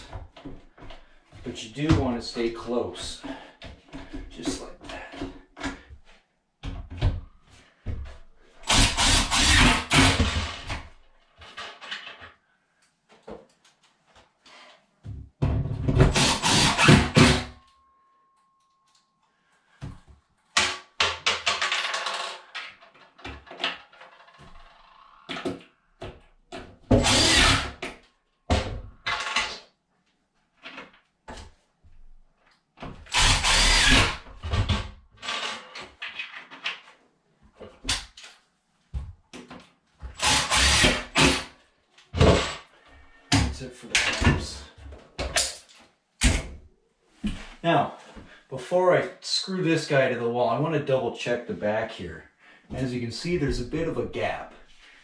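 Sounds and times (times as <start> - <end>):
cordless drill driving screws: 8.7 - 10.6, 16.1 - 17.4, 26.9 - 27.8, 33.1 - 34.2, 40.2 - 41.5.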